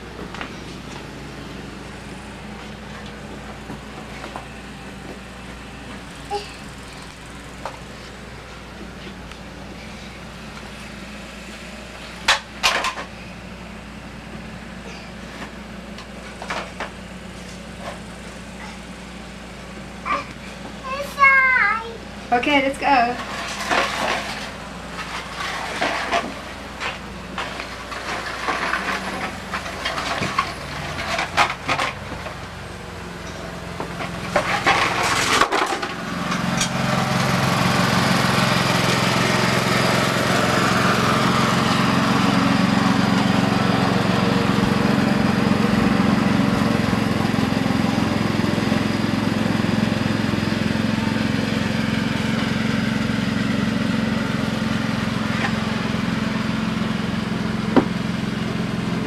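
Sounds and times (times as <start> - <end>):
lawn mower engine running: 0.0 - 59.0
knocks and clatter: 12.2 - 13.1.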